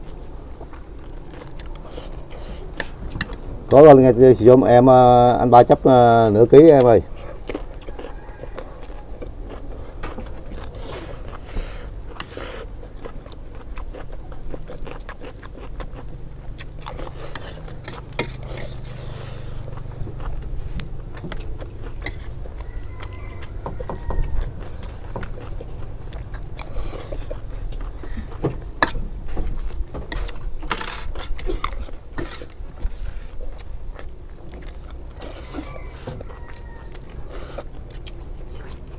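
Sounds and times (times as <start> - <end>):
chewing: 0.0 - 4.0, 5.2 - 38.9
low steady rumble: 0.0 - 38.9
metal spoons scraping trays: 30.1 - 32.5.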